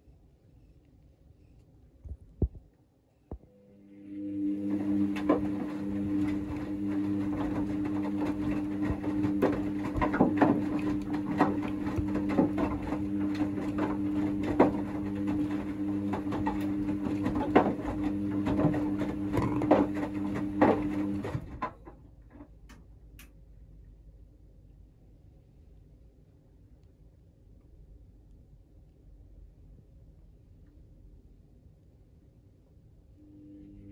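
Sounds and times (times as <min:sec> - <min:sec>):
washing machine motor hum: 0:03.3 - 0:22.0, 0:33.2 - 0:33.9
wet laundry flopping: 0:04.6 - 0:21.6
water sloshing in drum: 0:04.6 - 0:21.8.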